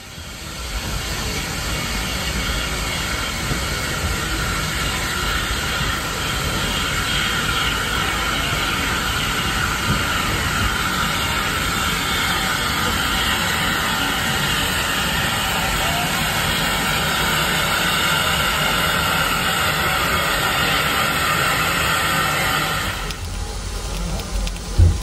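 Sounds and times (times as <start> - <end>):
steam locomotive hiss: 0.0 - 25.0
wheels rumbling on rails: 0.0 - 25.0.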